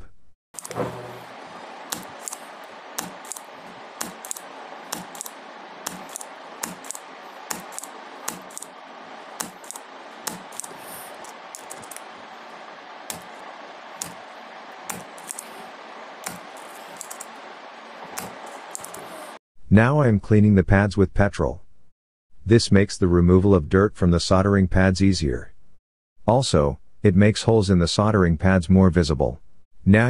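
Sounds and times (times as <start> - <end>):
steady hiss: 0.6 - 19.4
desoldering pump clicks: 1.9 - 2.4, 3.0 - 8.7.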